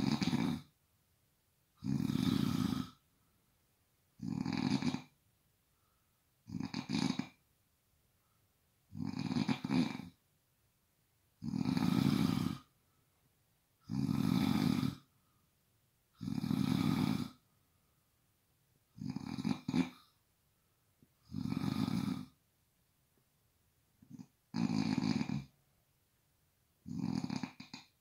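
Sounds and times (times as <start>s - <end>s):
person snoring: 0.0s - 0.7s, 1.8s - 3.0s, 4.2s - 5.1s, 6.5s - 7.4s, 8.9s - 10.2s, 11.4s - 12.7s, 13.9s - 15.1s, 16.2s - 17.4s, 19.0s - 20.1s, 21.3s - 22.4s, 24.1s - 25.5s, 26.9s - 27.9s
quiet breaths: 0.0s - 10.3s, 11.2s - 28.0s.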